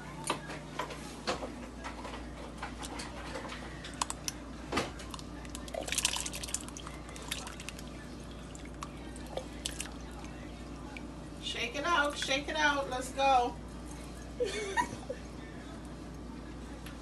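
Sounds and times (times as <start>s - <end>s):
water splashing: 5.5s - 10.3s.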